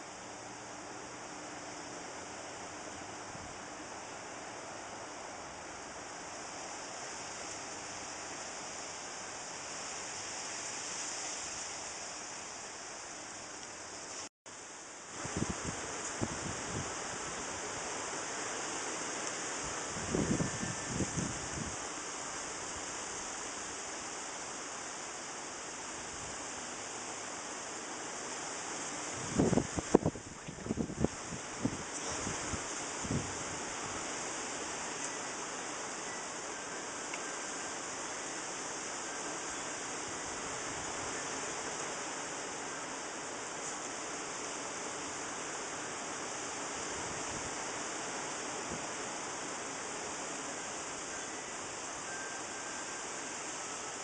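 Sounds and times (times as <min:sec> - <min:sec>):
outdoor background hiss: 0:00.0 - 0:54.0.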